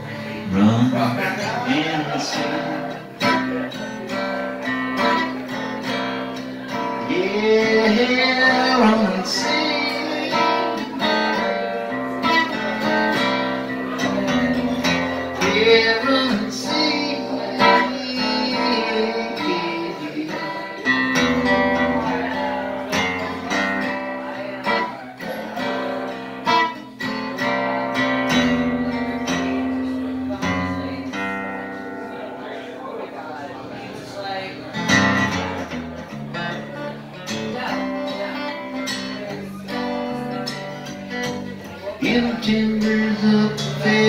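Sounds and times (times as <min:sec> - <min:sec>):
acoustic guitar strumming chords: 0:00.0 - 0:44.0.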